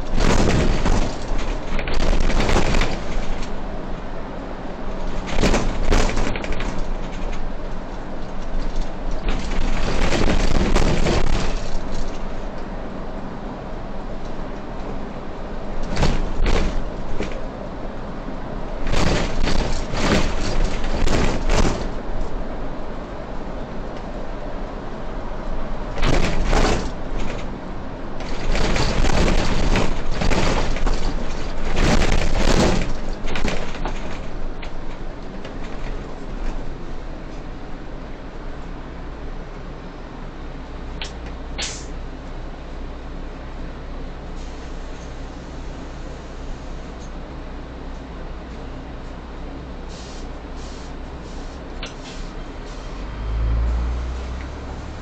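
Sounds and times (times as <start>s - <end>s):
harsh crackling rattling bursts: 0.0s - 3.5s, 28.2s - 34.4s
rattling and knocking: 0.0s - 3.6s, 5.0s - 7.5s, 8.2s - 12.3s, 15.8s - 17.4s, 18.8s - 22.1s, 26.0s - 27.5s, 28.2s - 36.6s
bus engine and road noise: 0.0s - 55.0s.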